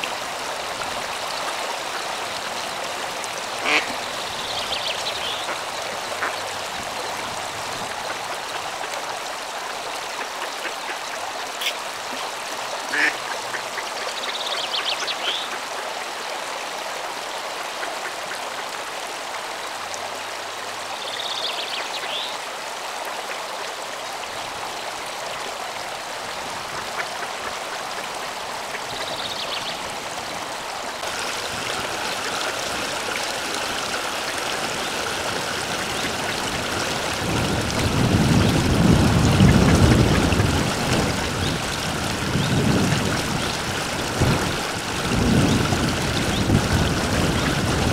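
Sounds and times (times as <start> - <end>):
water rushing over a weir: 0.0 - 47.9
wind buffeting microphone: 35.4 - 47.9.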